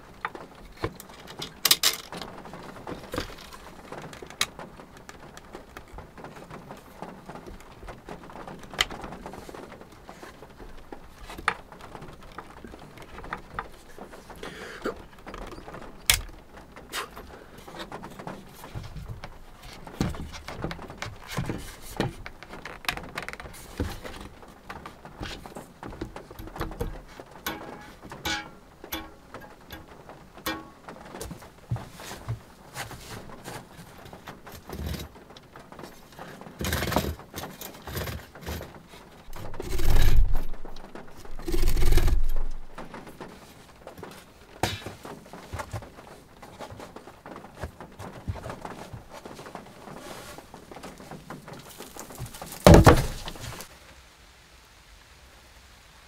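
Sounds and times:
wooden boards and tools clattering: 0.0s - 53.7s
heavy thuds: 51.6s - 53.7s.

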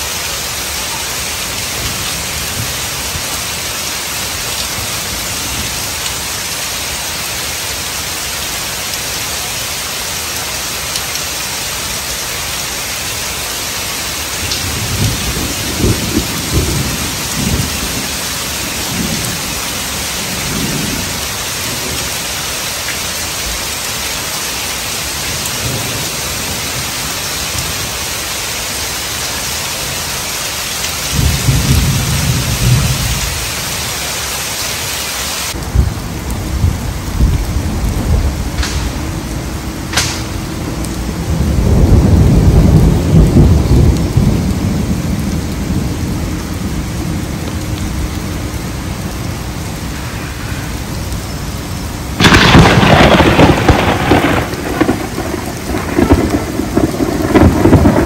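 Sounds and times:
heavy rain: 0.0s - 58.0s
thunder rumbling: 14.2s - 22.2s, 31.0s - 33.6s, 35.5s - 58.0s.

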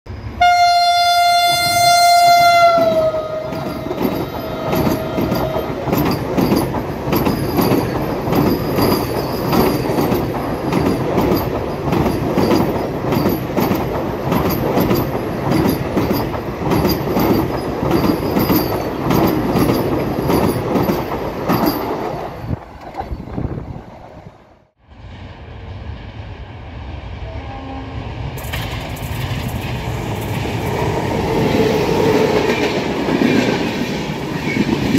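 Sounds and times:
approaching train rumble: 0.1s - 34.9s
train rushing past: 0.1s - 34.9s
train horn: 0.4s - 5.8s, 27.1s - 28.2s
wheels clacking over rail joints: 2.7s - 23.5s.

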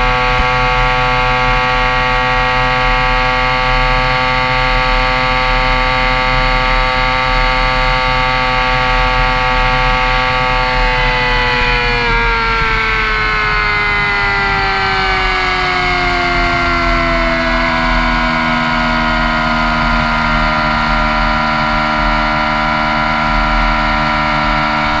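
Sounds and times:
motorcycle engine: 0.0s - 25.0s.

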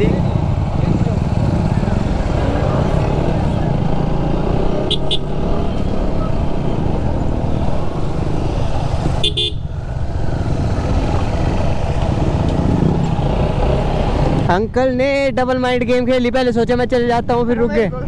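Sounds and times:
motorcycle engine drone: 0.0s - 14.6s
vehicle horn toot: 4.9s - 5.3s, 9.2s - 9.7s.

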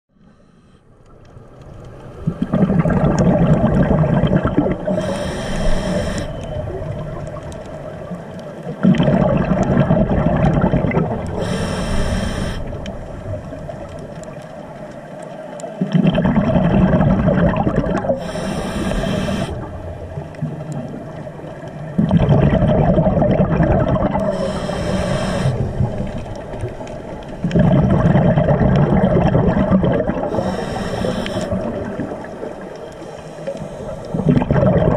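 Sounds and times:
diver breathing through regulator: 0.1s - 0.9s, 4.8s - 6.6s, 11.2s - 12.9s, 18.1s - 19.8s, 24.2s - 26.0s, 30.2s - 32.1s, 32.9s - 34.4s
exhaled bubbles rushing: 2.0s - 11.6s, 15.8s - 34.9s.

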